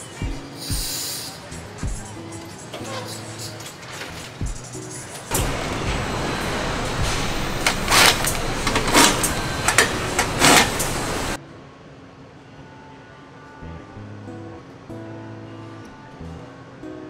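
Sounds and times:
factory assembly line noise: 0:02.4 - 0:11.4
power tool bursts: 0:05.3 - 0:11.4.

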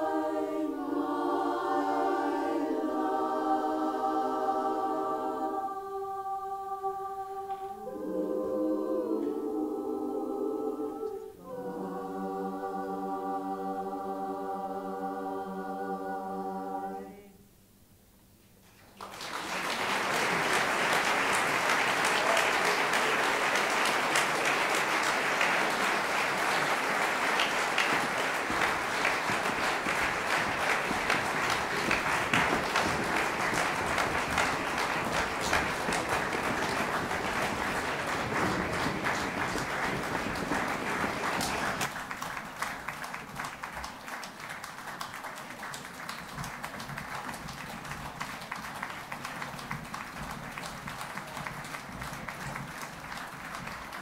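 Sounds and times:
women's chorus singing chord: 0:00.0 - 0:17.5, 0:19.7 - 0:41.9
audience applause: 0:18.9 - 0:54.0.

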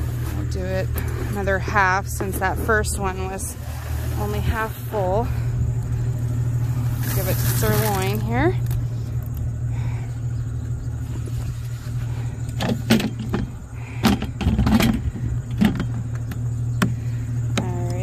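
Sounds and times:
low engine-like hum: 0:00.0 - 0:18.0
sharp knocks and clanks: 0:12.6 - 0:17.0.

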